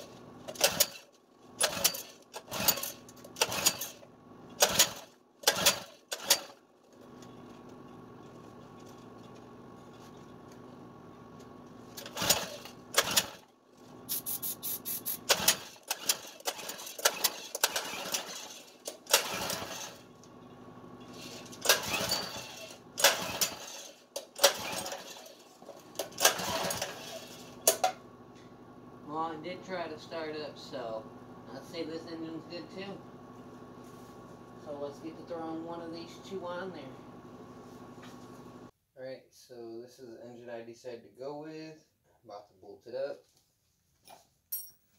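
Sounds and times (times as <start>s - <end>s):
engine pull-starter yanked: 0.5s - 6.6s, 11.9s - 13.4s, 15.2s - 20.1s, 21.1s - 28.0s.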